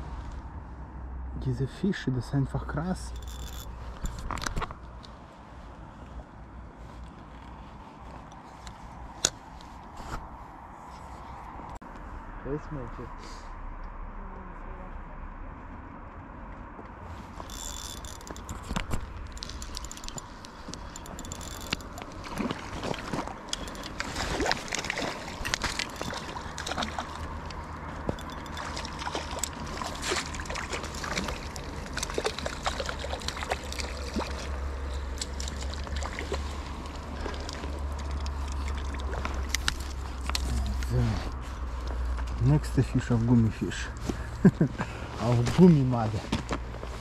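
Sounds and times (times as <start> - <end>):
fishing reel cranking: 3.1 - 4.2, 17.4 - 22.2, 23.5 - 24.1, 25.4 - 34.5
fish splashing at water surface: 17.5 - 40.2.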